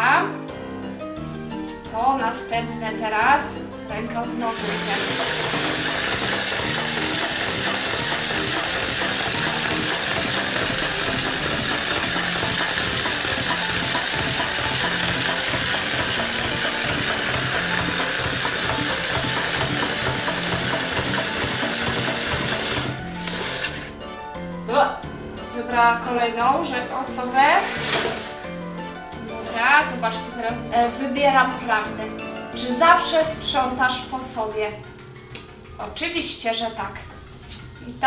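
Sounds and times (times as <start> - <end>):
toy motor gears whirring and clicking: 4.5 - 23.9, 27.6 - 28.3.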